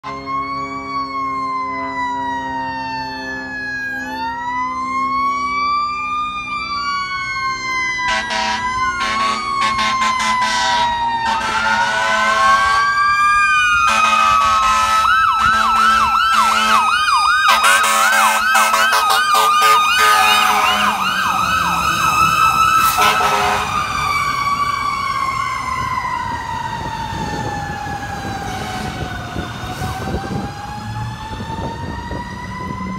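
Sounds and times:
air horn blasts: 0:00.0 - 0:00.9, 0:08.0 - 0:12.9, 0:13.8 - 0:21.1, 0:22.8 - 0:23.8
electronic siren wailing and yelping: 0:00.0 - 0:32.9.

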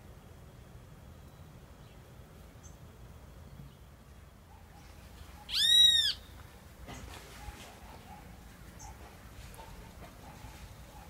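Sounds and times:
animal call rising and falling: 0:05.5 - 0:06.2.

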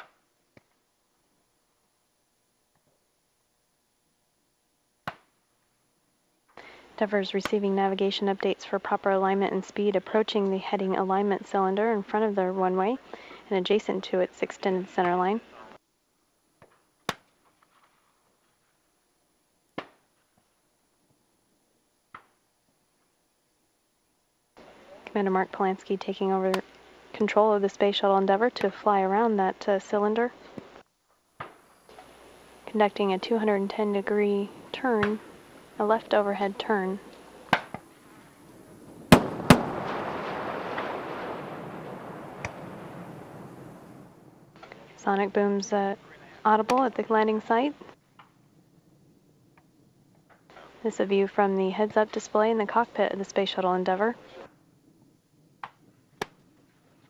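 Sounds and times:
faint hiss: 0:00.0 - 0:57.0
low rumble: 0:33.0 - 0:45.0
double sonic boom: 0:38.8 - 0:44.3.

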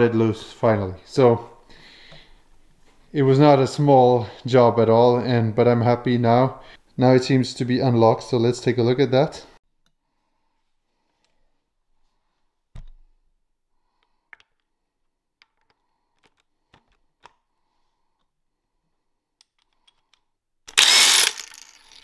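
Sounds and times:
impact wrench burst: 0:20.7 - 0:22.0.

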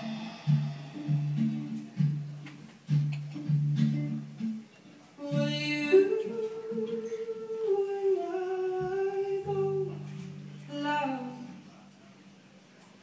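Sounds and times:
acoustic guitar strum: 0:00.0 - 0:04.7.

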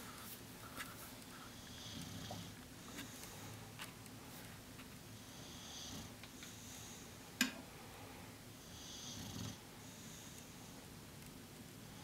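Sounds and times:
dog snoring: 0:01.5 - 0:03.0, 0:05.3 - 0:06.9, 0:08.6 - 0:10.4.

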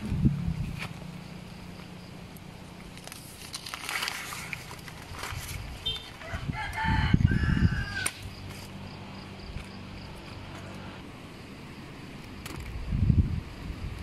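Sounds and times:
loud low rumble: 0:00.0 - 0:01.2
rooster crowing: 0:06.2 - 0:08.2.

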